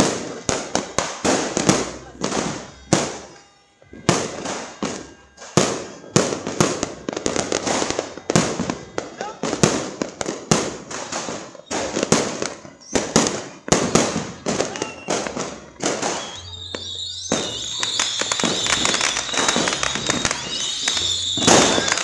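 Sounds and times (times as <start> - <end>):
firecracker bangs echoing: 0.0 - 22.0
firework crackling: 0.0 - 22.0
high whistling tone: 11.5 - 22.0.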